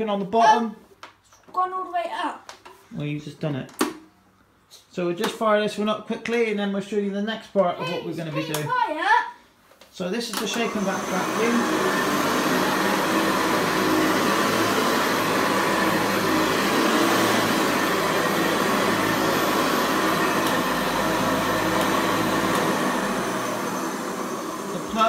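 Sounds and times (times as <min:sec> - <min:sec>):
upright vacuum cleaner running: 0:10.3 - 0:25.0.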